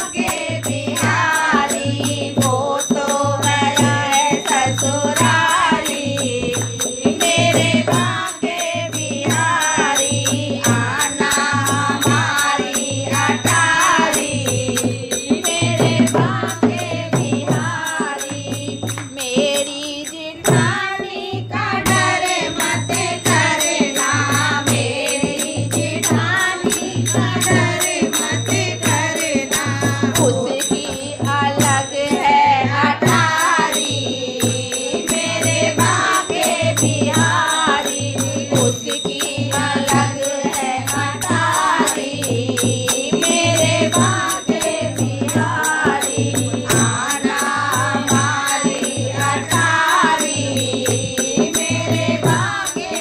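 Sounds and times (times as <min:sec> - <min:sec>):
hand drum beat: 0:00.0 - 0:53.0
person singing devotional song: 0:00.0 - 0:53.0.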